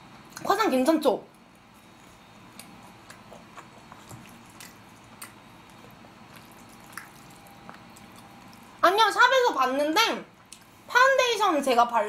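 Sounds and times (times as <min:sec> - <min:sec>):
quiet chewing: 0:01.3 - 0:08.8, 0:10.3 - 0:10.9.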